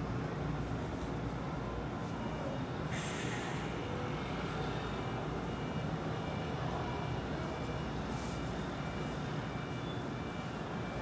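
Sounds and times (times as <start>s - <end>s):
short burst of hiss: 2.9s - 3.6s.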